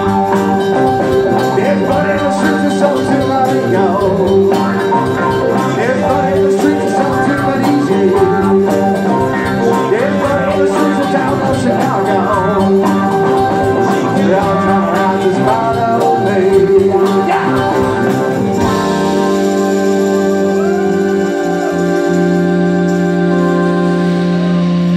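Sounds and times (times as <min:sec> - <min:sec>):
electric guitar lead with bends: 0:00.0 - 0:24.9
rock band playing: 0:00.0 - 0:24.9
sustained electric organ chord: 0:21.1 - 0:24.9.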